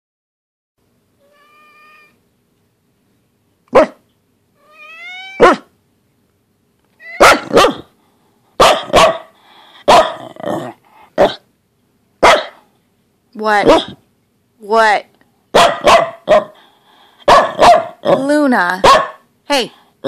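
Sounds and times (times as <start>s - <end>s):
dog whining: 1.2s - 2.2s, 4.6s - 5.7s, 7.0s - 7.9s
dog barking: 3.7s - 4.1s, 5.4s - 5.7s, 7.1s - 7.9s, 8.6s - 10.4s, 11.2s - 11.4s, 12.2s - 12.7s, 13.6s - 14.0s, 15.5s - 16.6s, 17.2s - 18.2s, 18.8s - 19.3s.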